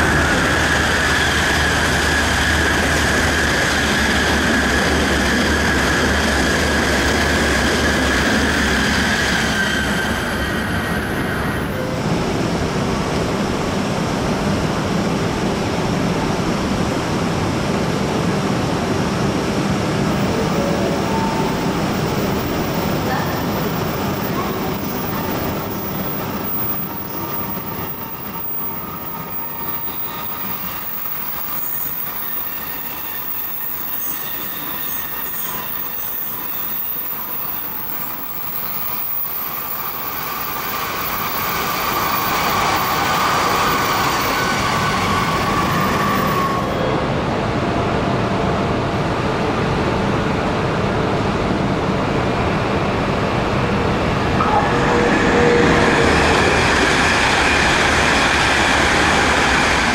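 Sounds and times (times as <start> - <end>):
train wheels rumbling on rails: 0.0 - 59.9
high whine: 53.8 - 59.9.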